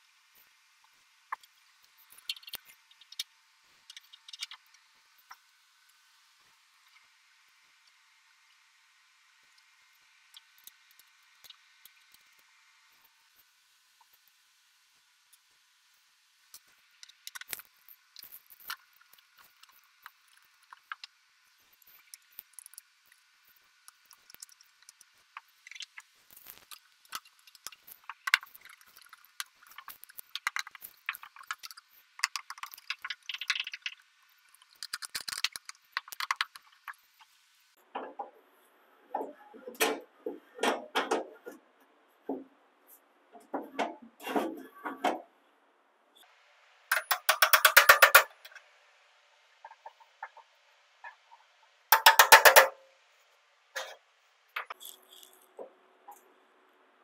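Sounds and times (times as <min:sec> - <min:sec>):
metal parts clinking and rattling: 0:46.9 - 0:48.3, 0:51.9 - 0:52.8
rapid even clicking: 0:46.9 - 0:48.3.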